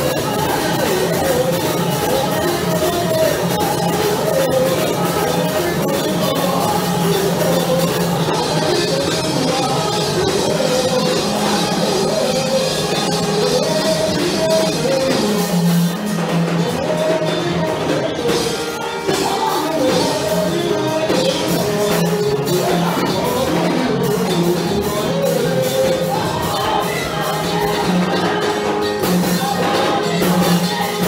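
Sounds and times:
instrumental accompaniment: 0:00.0 - 0:31.0
man singing into a microphone: 0:00.0 - 0:31.0
women's choir singing: 0:19.0 - 0:31.0.

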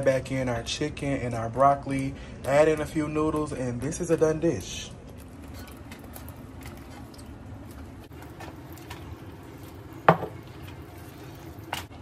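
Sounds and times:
spoon knocking saucepan: 0:10.0 - 0:10.4.

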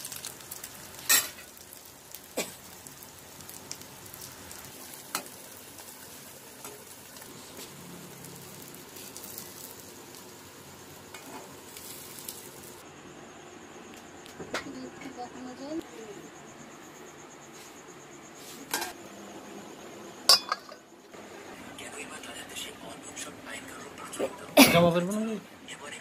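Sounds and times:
omelette sizzling in oil: 0:00.0 - 0:12.8.

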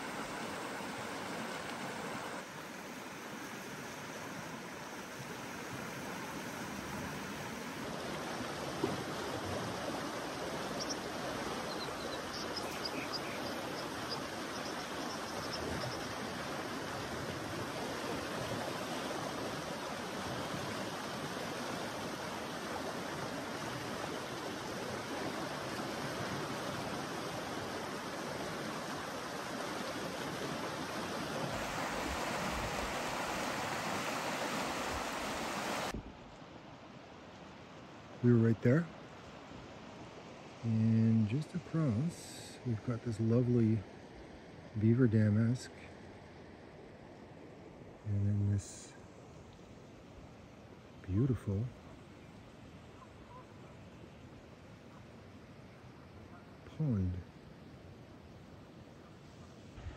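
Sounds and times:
river water rushing: 0:00.0 - 0:38.2, 0:38.9 - 0:43.3.

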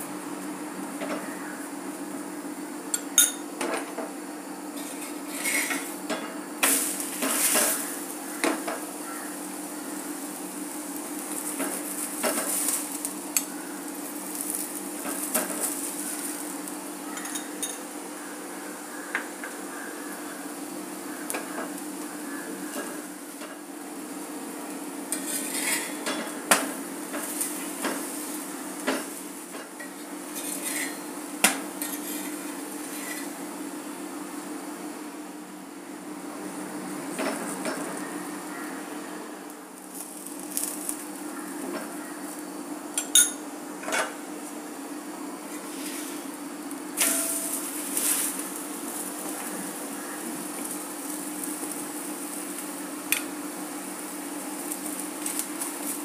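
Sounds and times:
oil sizzling: 0:00.0 - 0:35.1, 0:36.3 - 0:56.0
spatula clinking and scraping pan: 0:04.8 - 0:07.9, 0:25.1 - 0:26.3, 0:29.8 - 0:31.1, 0:31.8 - 0:33.3, 0:47.0 - 0:48.4.

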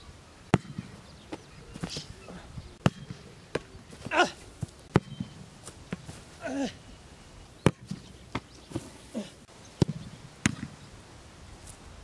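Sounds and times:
soccer ball kicks: 0:00.5 - 0:02.1, 0:02.8 - 0:06.2, 0:07.6 - 0:08.9
short vocal cries: 0:04.0 - 0:04.5, 0:06.4 - 0:06.9.

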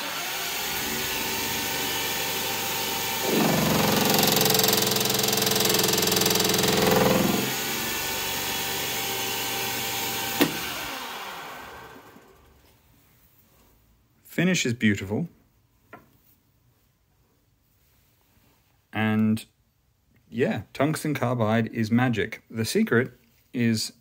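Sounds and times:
lathe cutting with harsh buzz: 0:00.0 - 0:12.0
lathe spindle running: 0:00.0 - 0:12.3.

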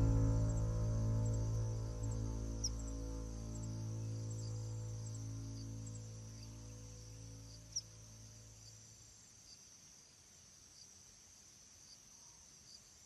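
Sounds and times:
low music drone: 0:00.0 - 0:07.7
night insects chirring: 0:00.0 - 0:13.0.

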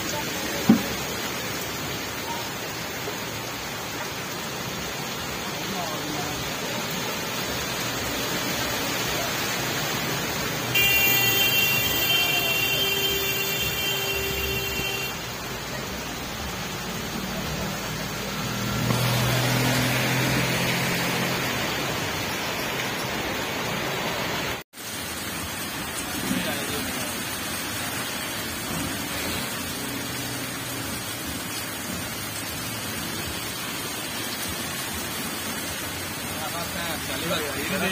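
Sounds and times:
heavy rain: 0:00.0 - 0:37.9
wheels splashing through water: 0:00.0 - 0:37.9
vehicle engine passing: 0:16.5 - 0:22.3.

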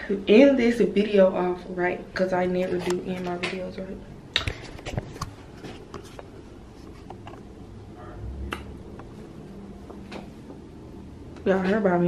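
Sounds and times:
faint room hum: 0:00.0 - 0:12.0.

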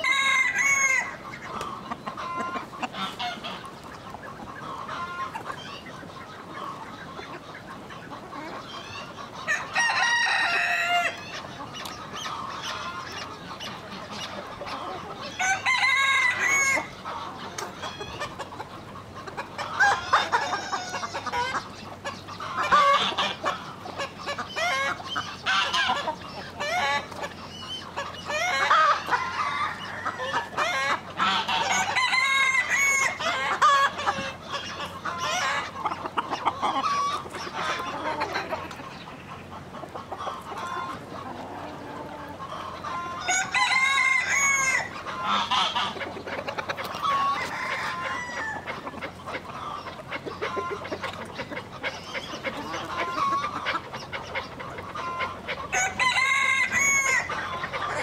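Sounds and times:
rooster crowing: 0:00.0 - 0:01.2, 0:09.5 - 0:11.2, 0:15.4 - 0:16.9, 0:28.4 - 0:33.8, 0:43.2 - 0:45.8, 0:47.1 - 0:48.7, 0:55.7 - 0:57.4
chickens clucking: 0:00.0 - 0:58.0.

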